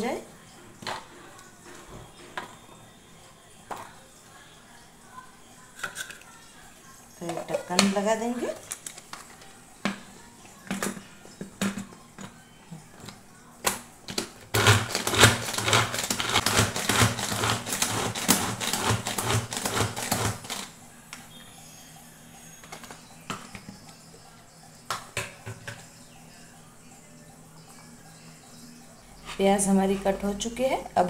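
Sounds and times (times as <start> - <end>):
food chopper rattling: 14.5 - 20.7.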